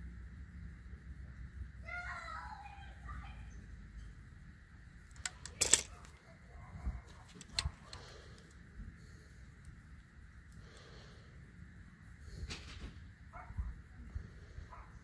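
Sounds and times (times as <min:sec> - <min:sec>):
sharp clicks: 0:07.2 - 0:08.6.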